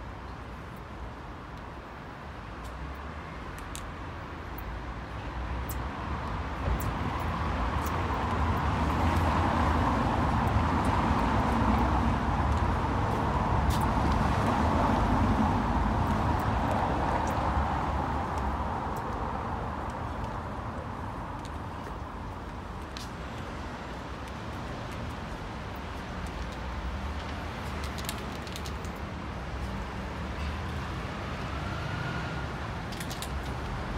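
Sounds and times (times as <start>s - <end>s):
road vehicle passing: 26.9s - 33.9s.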